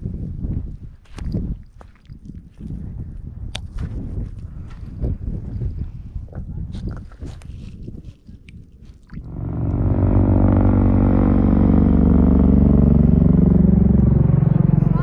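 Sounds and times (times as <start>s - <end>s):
drone propellers humming: 9.2s - 15.0s.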